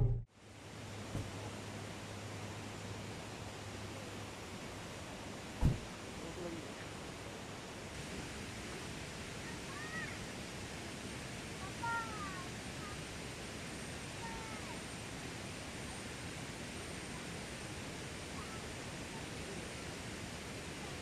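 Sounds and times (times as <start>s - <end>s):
steady outdoor hiss: 0.0s - 21.0s.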